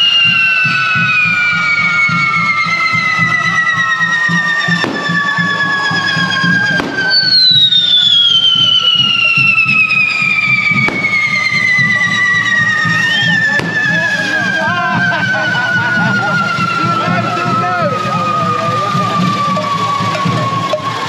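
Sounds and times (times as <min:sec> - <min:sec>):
firework fountains hissing: 0:00.0 - 0:21.0
firework whistles falling in pitch: 0:00.0 - 0:21.0
firework cracks: 0:03.8 - 0:14.6.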